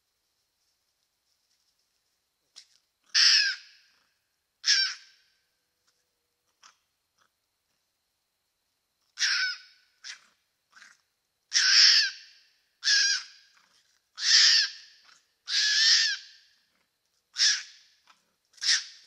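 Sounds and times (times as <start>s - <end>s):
animal harsh calls: 3.1s - 3.7s, 4.6s - 5.1s, 9.2s - 12.2s, 12.8s - 13.4s, 14.2s - 14.9s, 15.5s - 16.4s, 17.4s - 17.8s, 18.6s - 19.0s.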